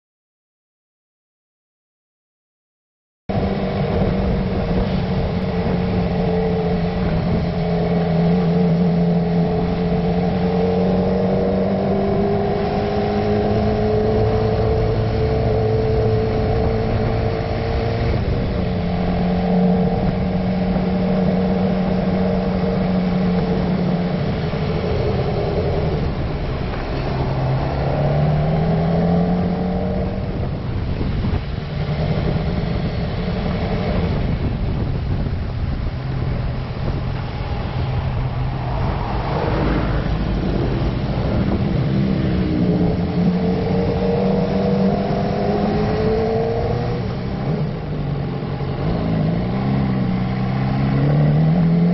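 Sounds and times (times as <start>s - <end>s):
motorcycle engine running: 3.3s - 11.3s.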